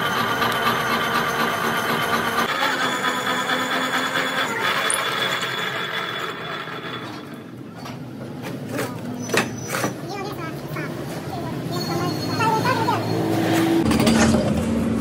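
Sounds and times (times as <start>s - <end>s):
drill grinding into metal: 0.0s - 7.4s
drill press whine: 0.0s - 7.6s.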